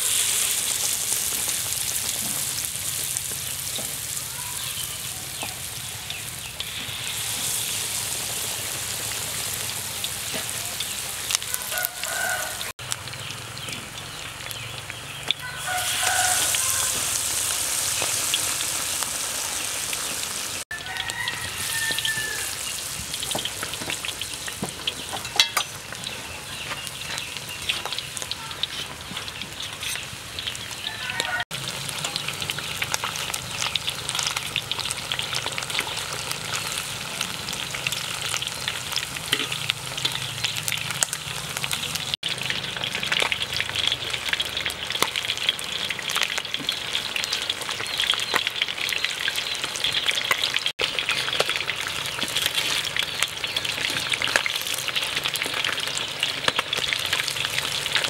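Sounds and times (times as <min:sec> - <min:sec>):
deep-frying sizzle: 0:00.0 - 0:58.0
metal tongs turning food: 0:20.8 - 0:58.0.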